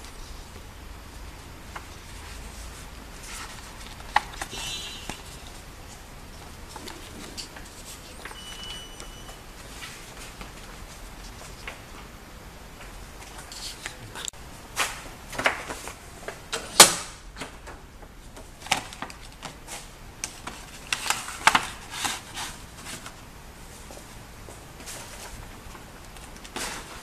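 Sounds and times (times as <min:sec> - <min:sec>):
paper rustling: 0:01.3 - 0:12.1, 0:18.2 - 0:24.2, 0:24.8 - 0:27.0.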